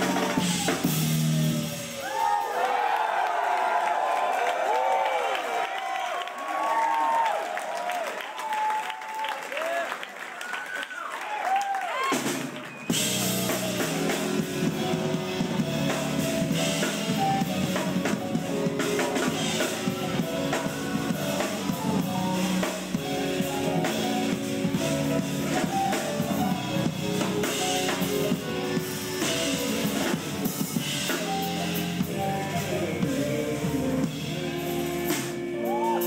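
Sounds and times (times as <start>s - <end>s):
live band playing: 0.0s - 2.4s, 12.0s - 36.0s
fast busy drum kit: 0.0s - 2.9s, 12.0s - 36.0s.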